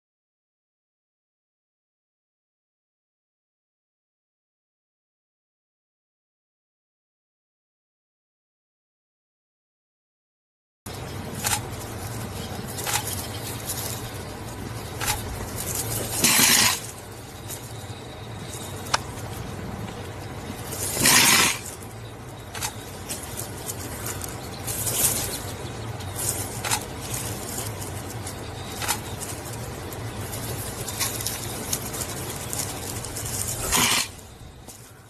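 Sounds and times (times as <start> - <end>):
porcupine quills rattling: 10.9 - 35.0
steady low hum: 10.9 - 35.0.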